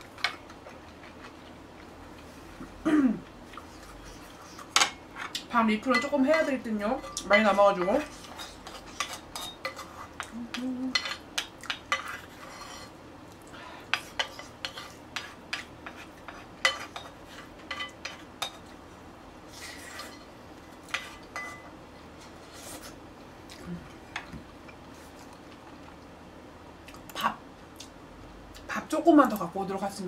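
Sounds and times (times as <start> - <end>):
cutlery clinking against dishes: 20.9 - 21.7.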